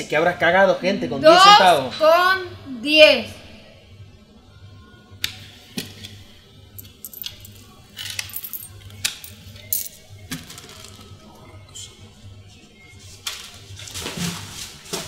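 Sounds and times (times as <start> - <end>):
coins clinking on counter: 6.8 - 10.9.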